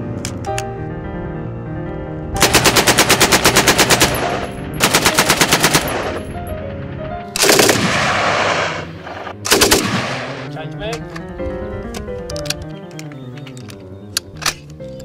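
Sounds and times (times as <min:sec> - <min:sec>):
background music sustained notes: 0:00.0 - 0:15.0
machine gun firing bursts: 0:02.4 - 0:06.2, 0:07.4 - 0:08.8, 0:09.5 - 0:10.5.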